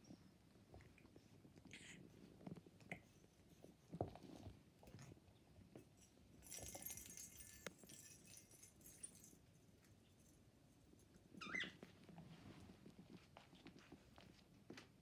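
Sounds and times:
puppy rustling against blanket: 10.8 - 15.0.

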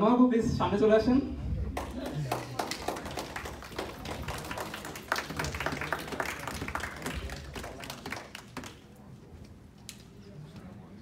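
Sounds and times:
murmur of voices: 1.2 - 11.0
audience clapping: 1.8 - 9.0.

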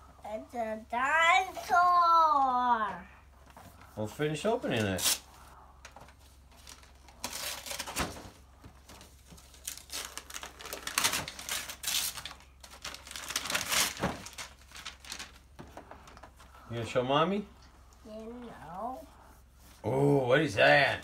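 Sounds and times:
wrapping paper tearing and crinkling: 4.8 - 5.3, 6.5 - 8.2, 8.8 - 16.2.

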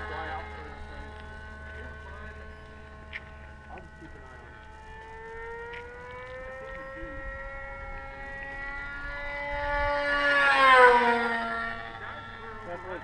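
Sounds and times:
model airplane engine buzzing: 0.0 - 13.0.

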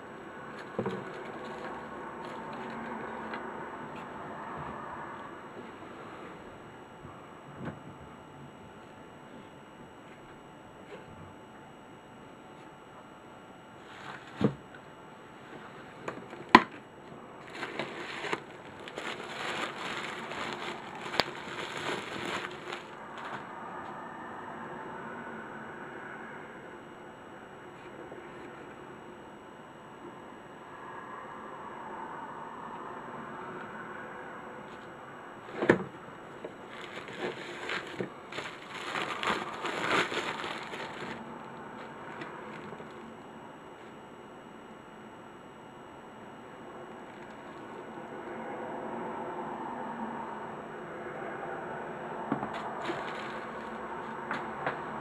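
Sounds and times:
bubble wrap crinkling: 1.0 - 2.8, 17.4 - 23.3, 36.6 - 41.2, 42.1 - 43.1, 52.5 - 53.8.

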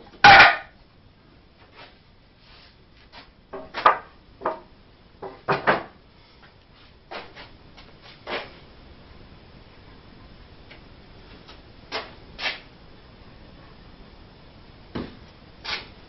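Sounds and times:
wood-on-wood knocks: 3.6 - 6.0.

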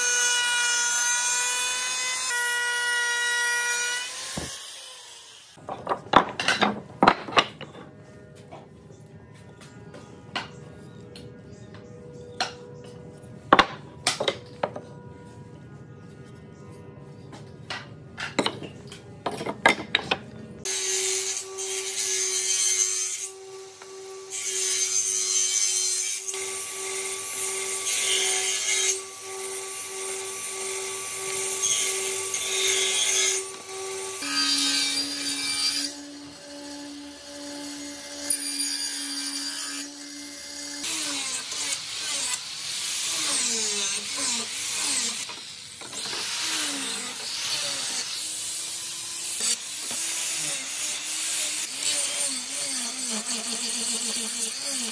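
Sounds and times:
table saw cutting wood: 0.0 - 7.9, 20.0 - 54.9
wood strips clacking together: 5.6 - 7.9
angle grinder sanding wood: 26.4 - 54.9.

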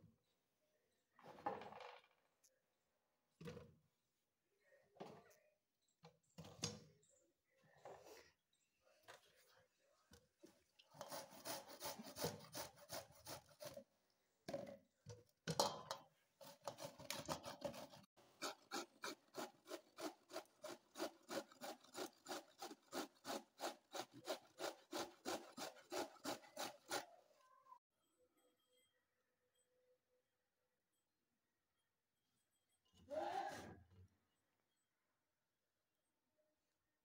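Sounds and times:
carrots scraping on metal grater: 10.9 - 13.8, 16.4 - 27.1.

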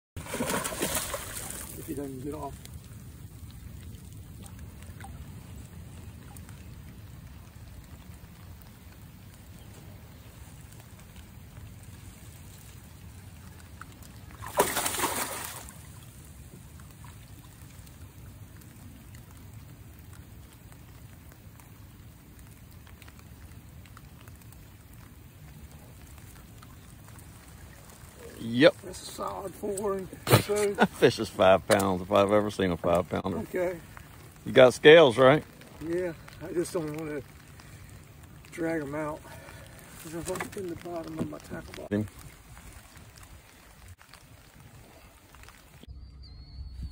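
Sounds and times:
fish splashing at surface: 0.2 - 1.9, 14.3 - 16.2
water sloshing: 0.2 - 19.6, 24.0 - 45.9.

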